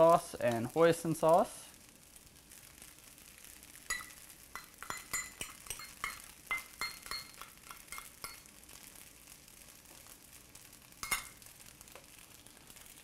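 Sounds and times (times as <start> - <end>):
metal spoon clinking in a metal bowl: 3.9 - 8.5, 11.0 - 11.4.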